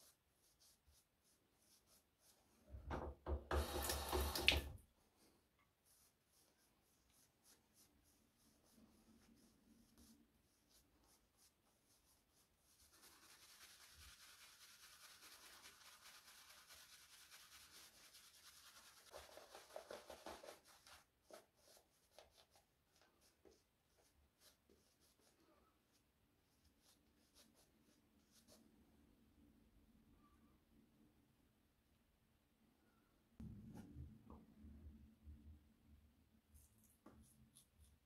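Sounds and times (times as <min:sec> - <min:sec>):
shaving brush strokes: 0:05.8 - 0:25.4.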